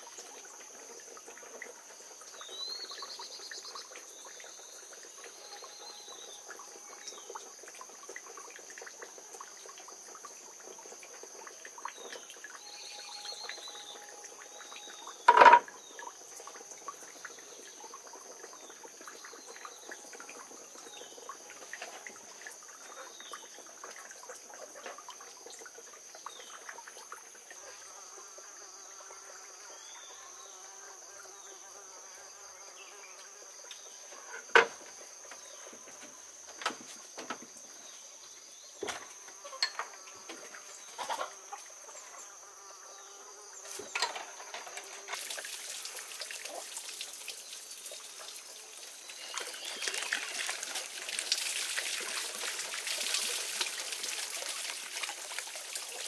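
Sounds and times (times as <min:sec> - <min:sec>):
hiss of running water: 0:00.0 - 0:56.0
sharp knocks and clicks: 0:15.3 - 0:15.7.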